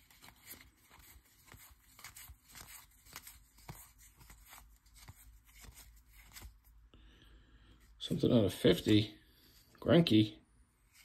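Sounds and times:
trading cards clicking and sliding: 0.0 - 6.7.

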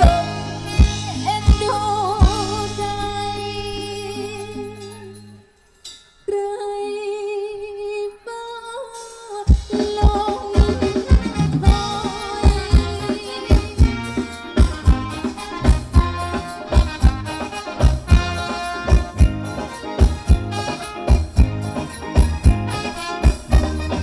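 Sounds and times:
steady drum beat: 0.0 - 3.0, 9.5 - 24.0
live band music: 0.0 - 5.6, 9.0 - 24.0.

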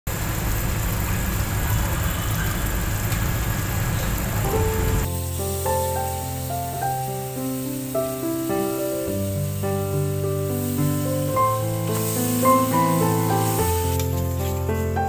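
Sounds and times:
background music melody: 4.5 - 15.0.

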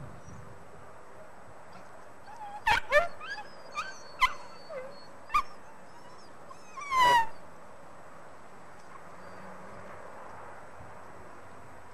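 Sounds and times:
puppies yelping and whimpering: 2.2 - 7.5.

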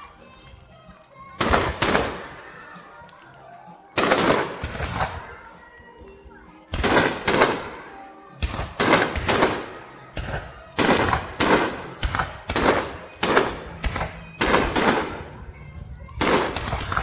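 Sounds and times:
fireworks bangs: 1.4 - 2.8, 4.0 - 5.4, 6.7 - 15.4, 16.1 - 17.0.

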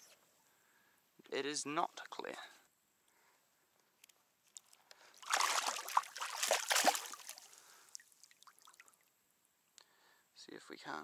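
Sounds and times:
fish thrashing in water: 5.2 - 7.6.

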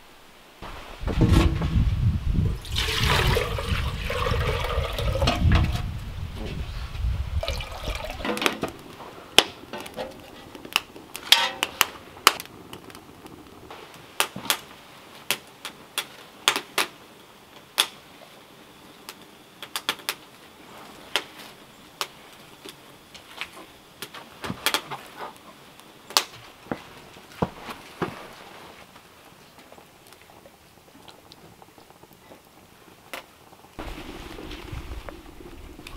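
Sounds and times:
water poured into metal pot: 2.6 - 5.8, 7.4 - 9.0, 33.8 - 35.9.

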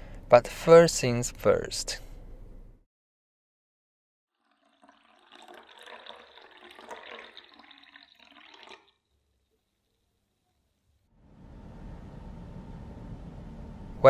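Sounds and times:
juice pouring into glass: 4.4 - 10.8.

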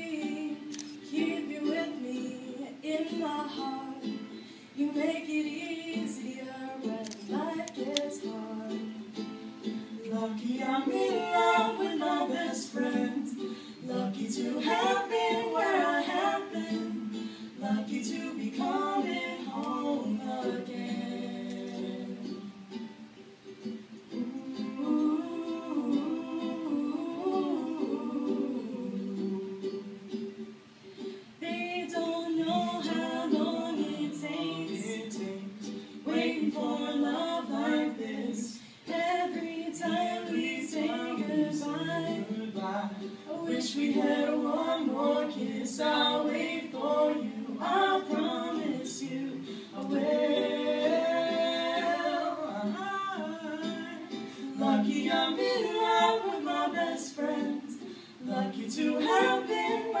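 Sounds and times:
strummed ukulele: 0.0 - 60.0
singer breathing: 4.3 - 4.8, 13.4 - 13.8, 17.2 - 17.6, 38.6 - 38.9, 49.4 - 49.8, 54.2 - 54.5, 57.8 - 58.2.

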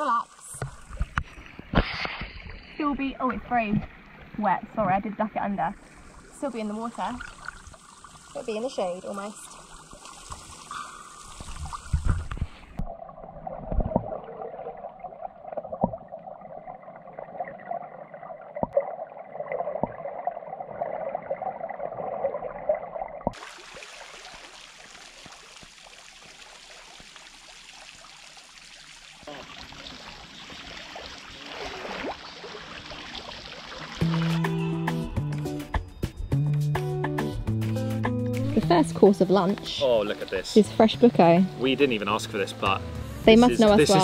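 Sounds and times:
steady hiss of water: 0.0 - 12.8, 23.3 - 34.3
water gurgling and lapping: 0.0 - 34.7
small clicks and splashes: 0.4 - 4.3, 5.8 - 12.9, 23.2 - 34.4.

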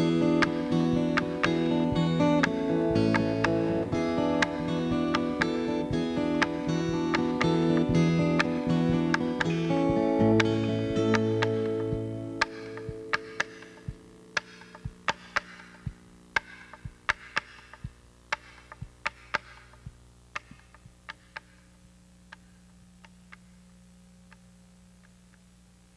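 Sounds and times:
acoustic guitar chord: 0.0 - 16.0
steady low hum: 0.0 - 25.9.

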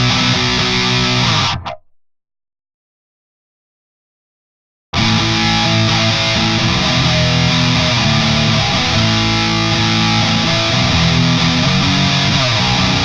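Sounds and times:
overdriven electric guitar: 0.0 - 1.9, 5.0 - 13.0.

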